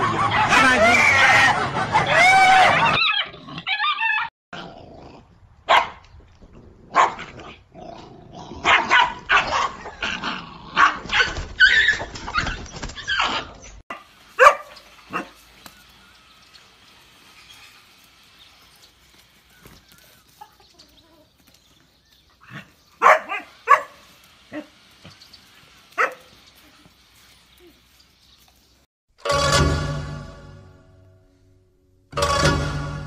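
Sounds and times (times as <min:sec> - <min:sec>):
dogs barking and yelping: 0:00.0 - 0:04.3, 0:06.9 - 0:07.5, 0:08.6 - 0:15.8, 0:22.4 - 0:24.8, 0:25.9 - 0:26.8.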